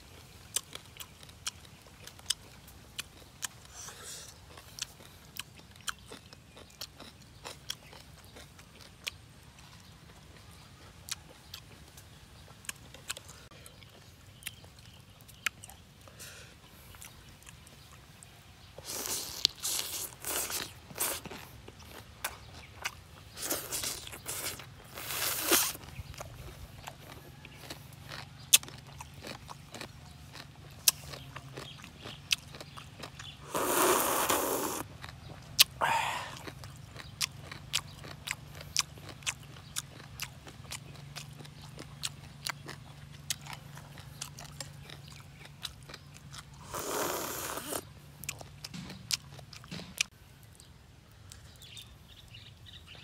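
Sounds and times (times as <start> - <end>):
man chewing and crunching: 0.0 - 53.0
slurping noodles: 23.4 - 25.8, 33.4 - 34.8, 46.6 - 47.8
wet mouth clicks: 32.3 - 34.9.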